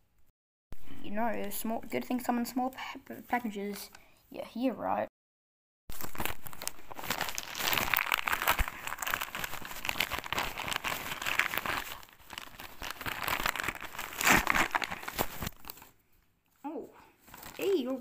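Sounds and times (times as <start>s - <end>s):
wrapping paper crinkling and tearing: 5.9s - 16.0s, 17.2s - 18.0s.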